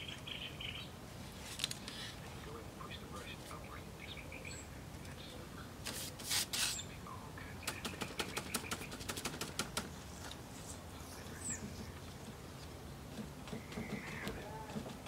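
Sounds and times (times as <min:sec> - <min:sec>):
rapid sharp taps: 0:07.6 - 0:09.9.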